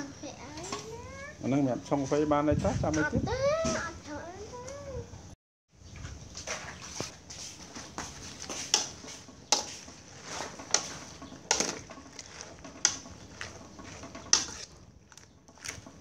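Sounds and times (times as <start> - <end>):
metal ladle scraping pot: 6.4 - 16.0.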